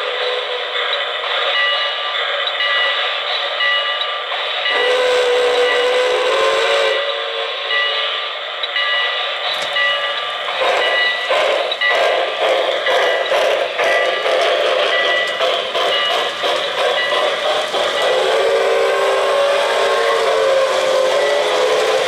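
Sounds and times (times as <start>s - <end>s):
deep steam whistle: 0.0s - 1.0s, 4.7s - 8.3s, 10.6s - 22.0s
toy steam locomotive running: 0.0s - 22.0s.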